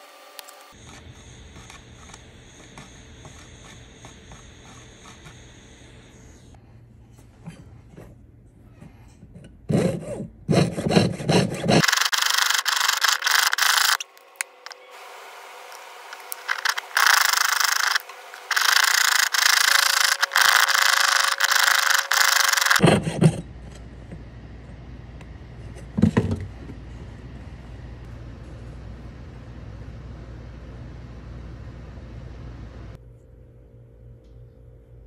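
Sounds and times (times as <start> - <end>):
saw blade rasping on metal: 9.7 - 14.0, 16.2 - 23.4.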